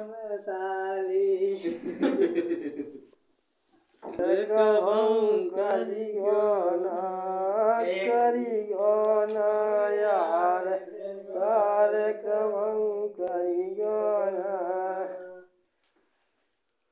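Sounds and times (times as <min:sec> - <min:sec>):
man singing folk song: 0:00.0 - 0:01.8, 0:04.1 - 0:15.6.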